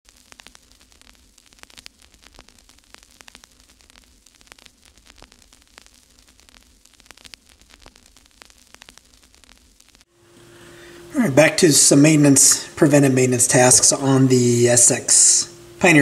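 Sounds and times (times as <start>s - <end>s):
crackling clicks: 0.1s - 10.1s
faint steady hiss: 0.1s - 16.0s.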